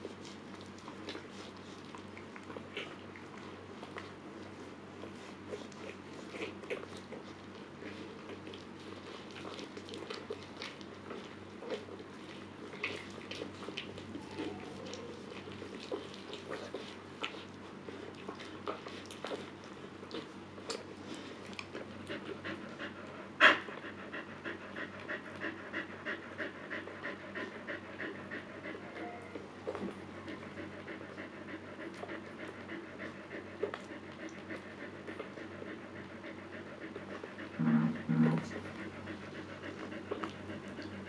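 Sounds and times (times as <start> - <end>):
dog panting: 0.0 - 41.0.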